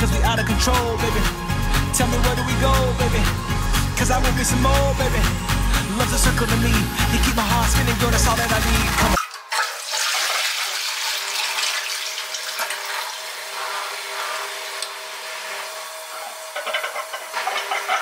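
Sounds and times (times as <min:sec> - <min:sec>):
toilet flushing: 0:08.1 - 0:18.0.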